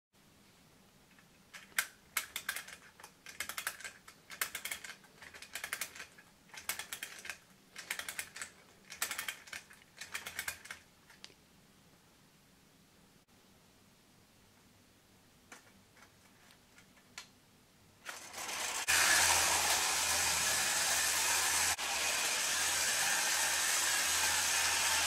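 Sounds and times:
toy clockwork ratchet clicks: 0:01.6 - 0:10.8, 0:18.1 - 0:21.8.

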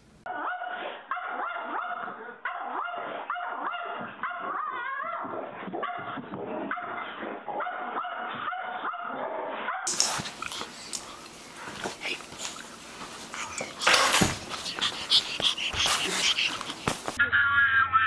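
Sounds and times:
puppy barking and yipping: 0:00.3 - 0:10.2, 0:13.4 - 0:17.2
puppy whining: 0:08.8 - 0:17.2.

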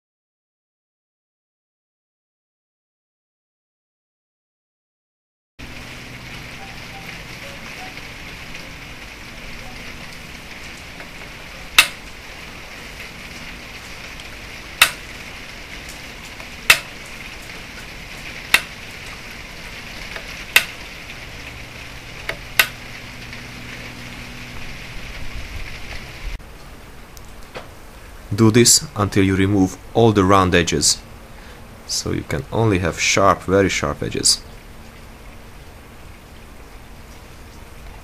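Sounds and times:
steady background hiss: 0:05.6 - 0:38.0
brass rod tapping flint: 0:14.8 - 0:15.0, 0:16.7 - 0:17.0, 0:18.5 - 0:18.8, 0:20.2 - 0:20.8.

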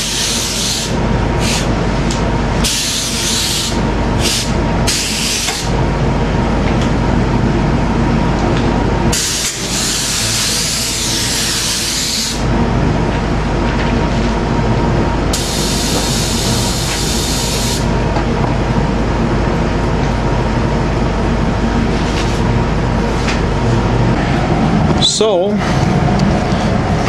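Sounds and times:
low machine drone: 0:00.0 - 0:27.0
spray gun hissing: 0:09.1 - 0:12.4.

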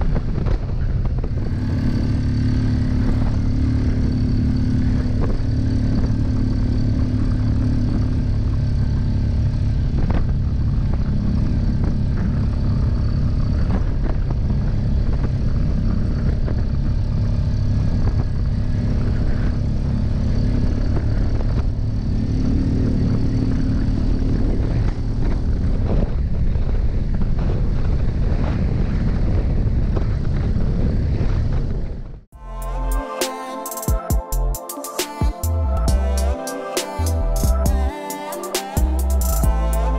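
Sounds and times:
atv engine running: 0:00.0 - 0:31.1, 0:35.6 - 0:36.4, 0:38.6 - 0:39.9.

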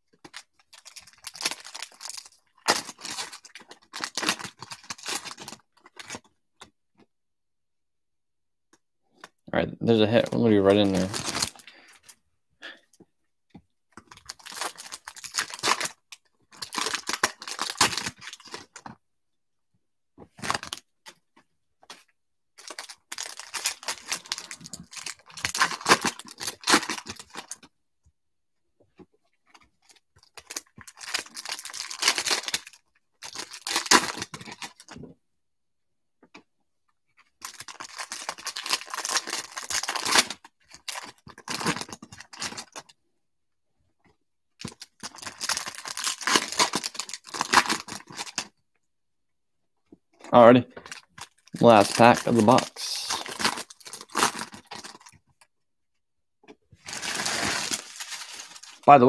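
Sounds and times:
foil wrapper crinkling and tearing: 0:00.2 - 0:06.3, 0:10.8 - 0:11.9, 0:14.0 - 0:19.0, 0:20.3 - 0:21.2, 0:22.6 - 0:27.7, 0:29.5 - 0:35.0, 0:37.4 - 0:42.9, 0:44.6 - 0:48.5, 0:50.8 - 0:55.4, 0:56.8 - 0:59.0.

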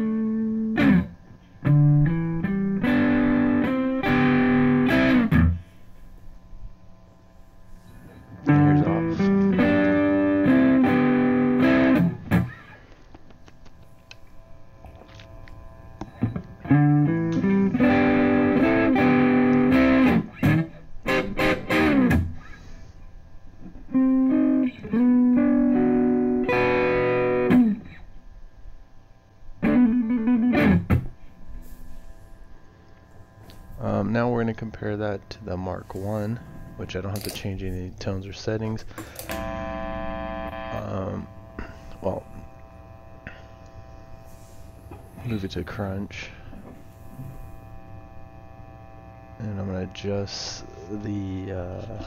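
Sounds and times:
electric guitar chords and notes: 0:00.0 - 0:07.1, 0:07.7 - 0:52.0.

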